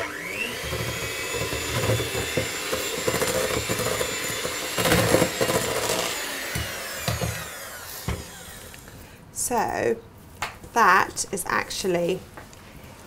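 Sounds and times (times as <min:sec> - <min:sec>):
electric mixer beating dough: 0:00.0 - 0:08.9.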